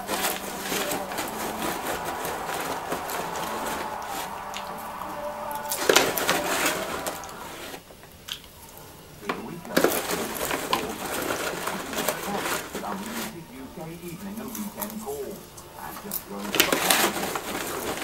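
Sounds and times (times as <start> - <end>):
paper bag rustling and crinkling: 0.0 - 4.4, 9.2 - 18.0.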